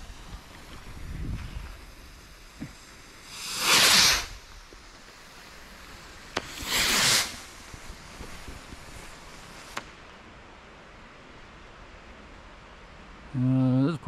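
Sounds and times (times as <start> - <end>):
firework rocket whoosh: 0.0 - 10.2
faint firework crackles: 0.0 - 10.5
firework pop: 6.3 - 7.4.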